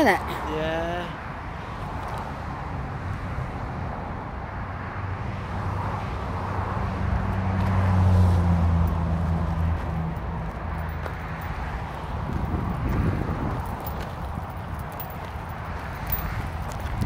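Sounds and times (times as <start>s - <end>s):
vehicle engine passing: 4.9s - 17.0s.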